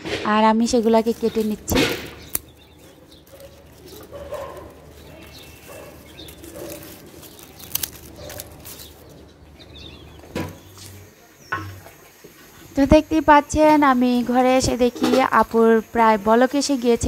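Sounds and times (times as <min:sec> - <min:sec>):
scissors cutting leaves: 0:00.6 - 0:11.1
pigeons cooing: 0:02.7 - 0:07.4.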